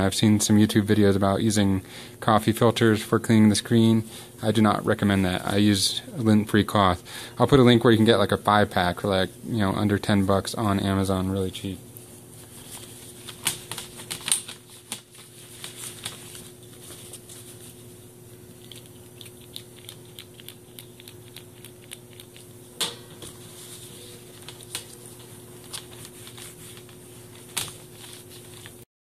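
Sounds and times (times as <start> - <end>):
faint steady hum: 0.0 - 28.9
cloth wiping laptop screen: 23.4 - 28.8.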